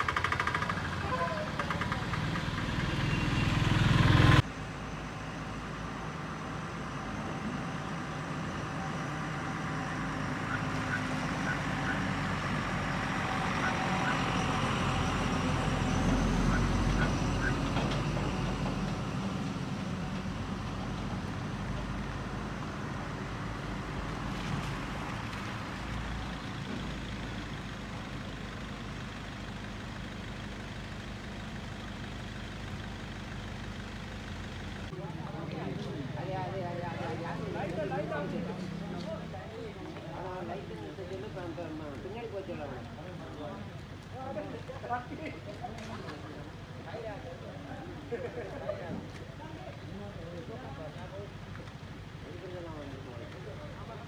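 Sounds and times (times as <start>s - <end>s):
vehicle engine idling: 0.0s - 54.0s.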